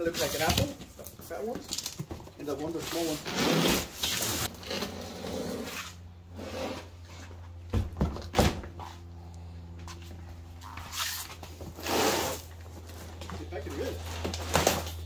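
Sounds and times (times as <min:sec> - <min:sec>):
cardboard scraping and rustling: 0:00.0 - 0:07.5
cardboard thudding on pavement: 0:07.7 - 0:08.9.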